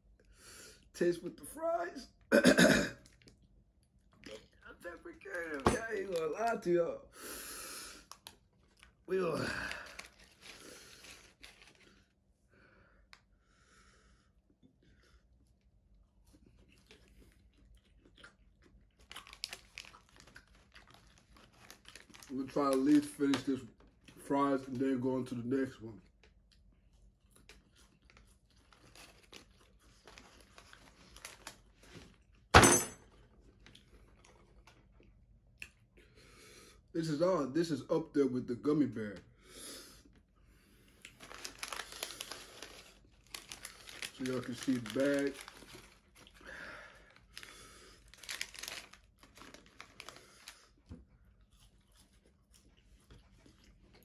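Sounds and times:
chewing: 3.0 - 4.7, 16.1 - 22.3, 26.0 - 31.7, 51.2 - 54.0
paper bag tearing and crumpling: 9.3 - 11.9, 19.2 - 23.5, 41.2 - 46.1, 48.0 - 50.6
paper rustling: 41.2 - 46.0.

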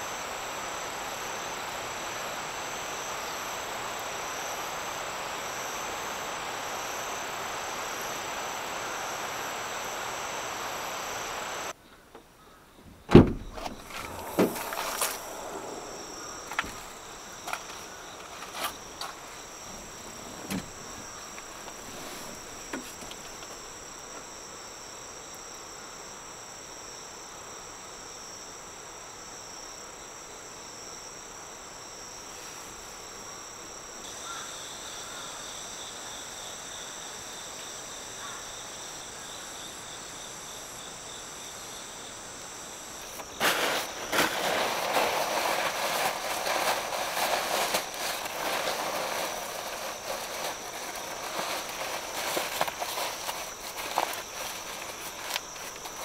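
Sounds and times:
insects singing: 0.0 - 11.8, 12.4 - 28.4, 32.9 - 56.0
plastic bag crinkling: 13.7 - 19.3, 43.0 - 56.0.

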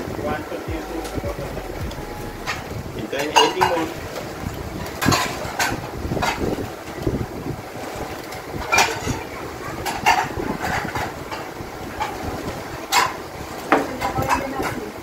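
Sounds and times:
engine rumbling: 0.0 - 6.2.

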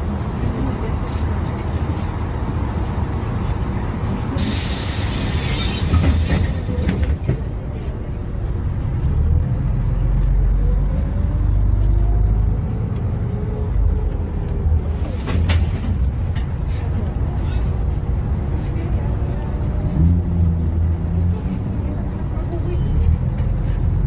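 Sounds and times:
bus engine rumble: 0.0 - 24.0
road noise: 0.0 - 24.0
burst of hiss: 4.4 - 5.9.

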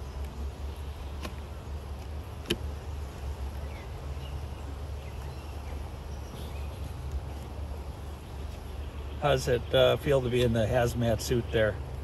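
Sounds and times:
wooden frames clicking on hive box: 1.1 - 2.8.

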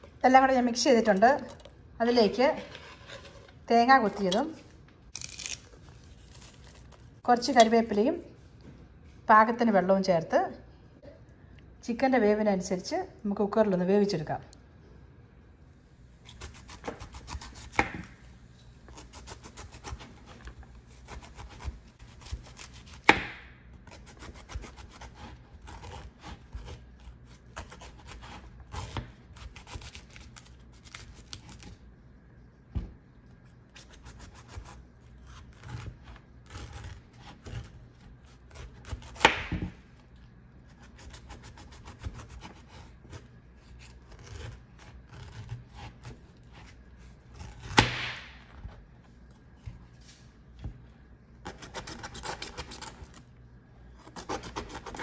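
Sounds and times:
knife cutting through rind: 40.8 - 47.9.

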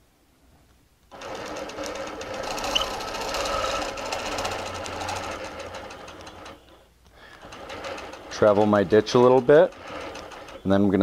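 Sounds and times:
quilting machine stitching: 1.1 - 11.0.

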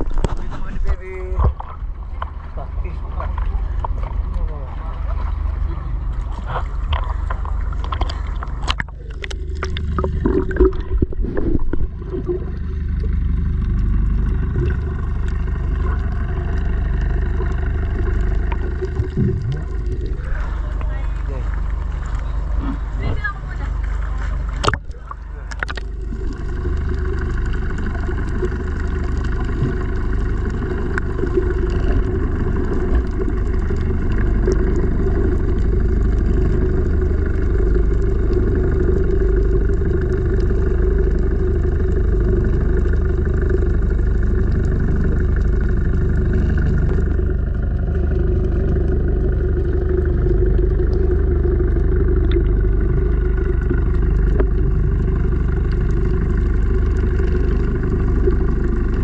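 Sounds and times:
faint steady hums: 0.0 - 59.0
muffled underwater rumble: 0.0 - 59.0.

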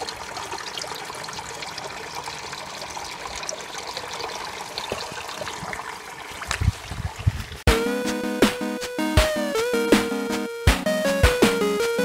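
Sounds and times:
water trickling into pond: 0.0 - 7.7.

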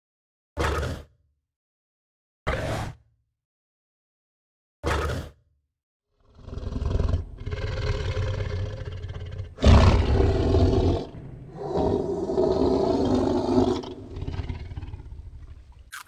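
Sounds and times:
tiger roaring: 6.2 - 15.9.

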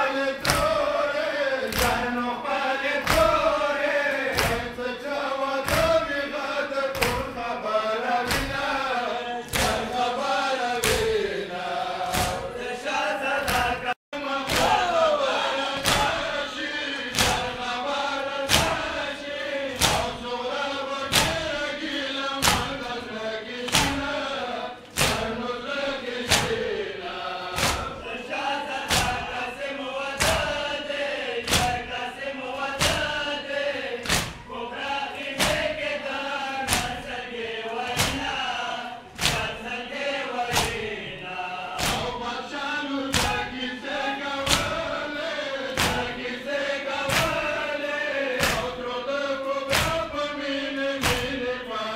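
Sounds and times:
men chanting together: 0.0 - 51.9
crowd beating chests: 24.8 - 28.2, 34.0 - 34.6.

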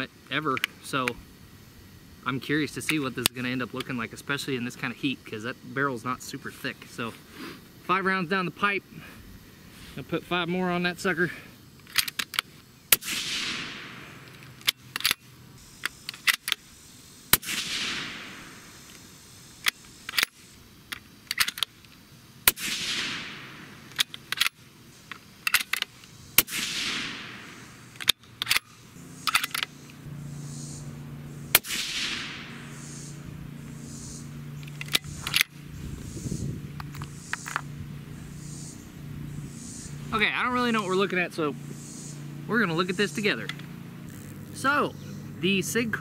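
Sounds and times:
steady low hum: 0.0 - 46.0
suppressed rifle shots: 12.9 - 15.2, 17.3 - 18.8, 22.4 - 24.5, 26.4 - 29.8, 31.4 - 35.6
rifle bolt clicks: 28.0 - 28.7, 34.6 - 35.5.

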